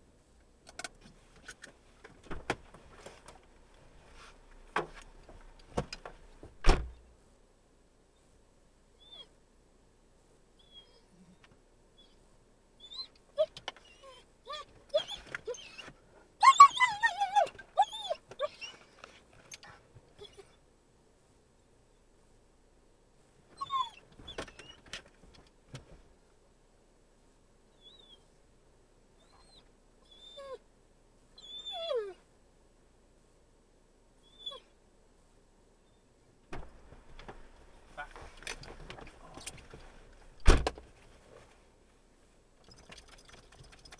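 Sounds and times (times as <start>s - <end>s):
faint background hum: 0.0s - 43.9s
animal whimpering: 12.9s - 18.8s, 20.2s - 20.6s, 31.4s - 32.2s.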